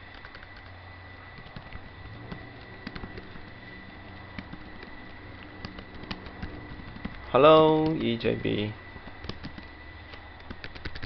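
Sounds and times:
steady low hum: 0:00.0 - 0:11.0
keyboard typing: 0:00.1 - 0:00.8, 0:01.4 - 0:08.2, 0:09.1 - 0:09.7, 0:10.4 - 0:11.0.

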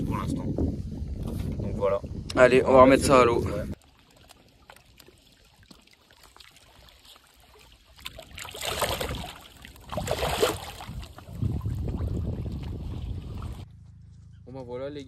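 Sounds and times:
water splashing: 0:03.7 - 0:13.6.

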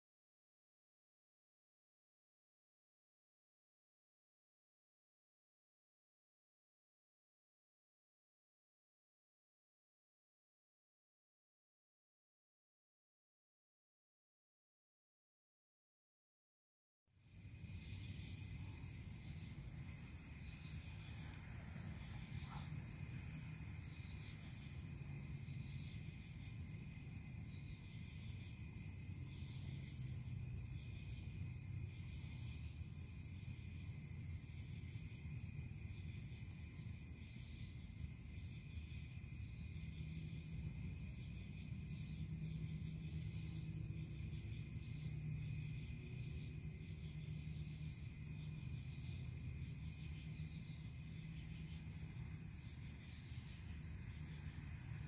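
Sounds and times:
faint low hum: 0:17.2 - 0:55.0
insects trilling: 0:17.2 - 0:55.0.

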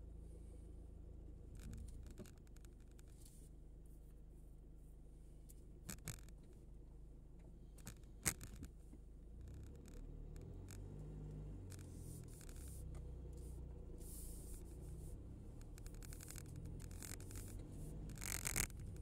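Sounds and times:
soft rubbing noises: 0:11.7 - 0:19.0.

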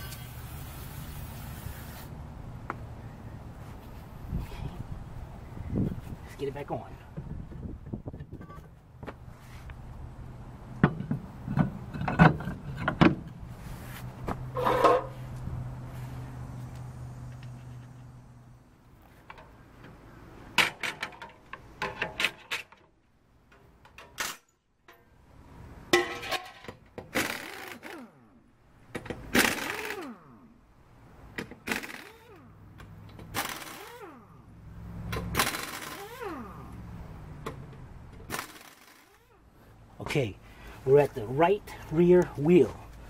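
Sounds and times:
air impact wrench bursts: 0:27.1 - 0:28.1, 0:29.3 - 0:30.2, 0:31.6 - 0:32.4, 0:33.3 - 0:34.2, 0:35.3 - 0:36.5, 0:38.3 - 0:39.3.

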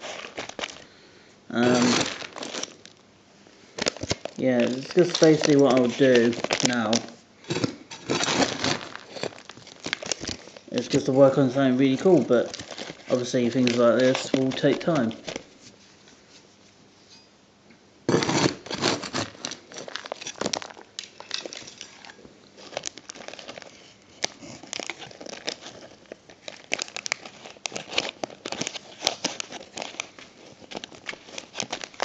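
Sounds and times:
rustling and crinkling material: 0:00.0 - 0:00.9, 0:01.6 - 0:17.2, 0:18.1 - 0:32.0.

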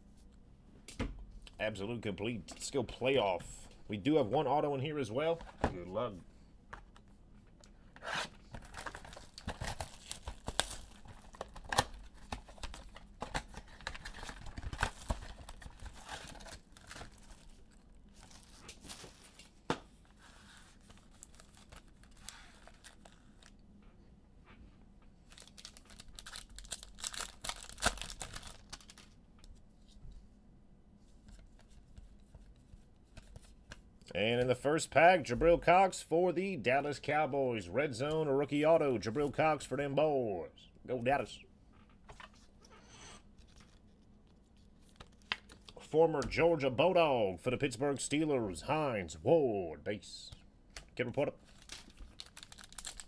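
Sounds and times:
card packs tearing open: 0:08.0 - 0:17.6, 0:20.8 - 0:23.5, 0:25.3 - 0:29.2, 0:51.4 - 0:53.0
wrapper crinkling: 0:08.6 - 0:19.5, 0:20.7 - 0:23.6, 0:25.3 - 0:29.2, 0:51.4 - 0:53.0
cards being handled: 0:31.2 - 0:33.8, 0:43.4 - 0:46.3.

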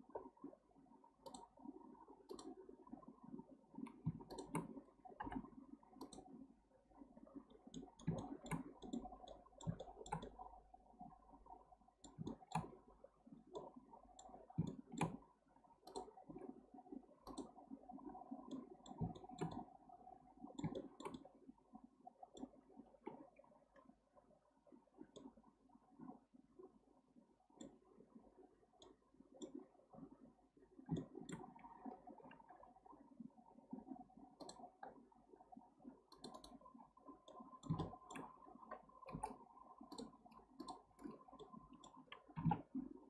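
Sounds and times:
computer mouse clicking: 0:01.2 - 0:01.6, 0:02.2 - 0:02.6, 0:03.8 - 0:05.4, 0:06.0 - 0:06.3, 0:07.5 - 0:10.4, 0:12.0 - 0:12.8, 0:13.5 - 0:15.2, 0:15.8 - 0:16.2, 0:17.2 - 0:17.6, 0:18.5 - 0:19.7, 0:20.5 - 0:21.3, 0:25.1 - 0:25.4, 0:27.6 - 0:27.8, 0:30.8 - 0:31.8, 0:34.4 - 0:35.0, 0:36.1 - 0:42.8.

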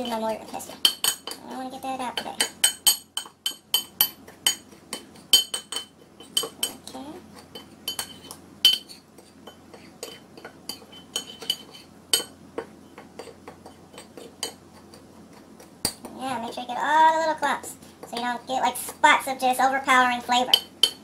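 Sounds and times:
metal spoon clinking in ceramic bowl: 0:02.4 - 0:06.8, 0:07.4 - 0:12.4, 0:20.5 - 0:21.0.

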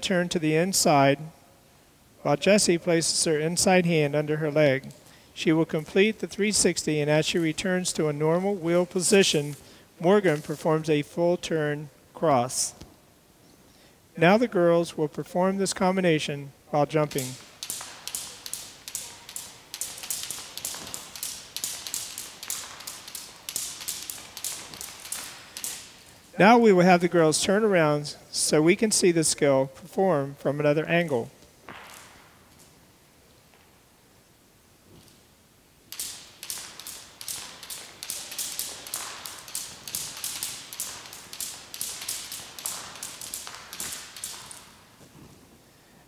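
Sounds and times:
jump ropes slapping the floor: 0:16.9 - 0:26.4, 0:35.9 - 0:45.1.

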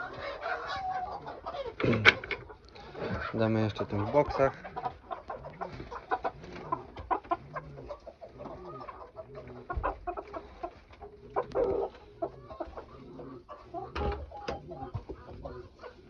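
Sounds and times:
hens clucking: 0:00.0 - 0:16.0
rustling of wood-chip bedding: 0:02.8 - 0:13.9.

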